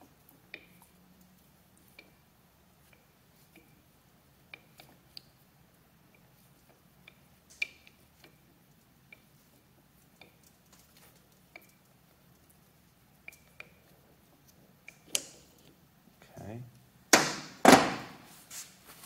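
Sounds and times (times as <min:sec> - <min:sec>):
light metallic clicks and taps: 0:13.2 - 0:15.8.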